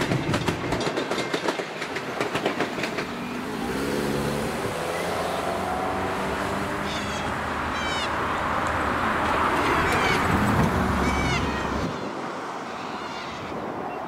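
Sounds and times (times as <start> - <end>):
cars driving past: 3.1 - 13.8.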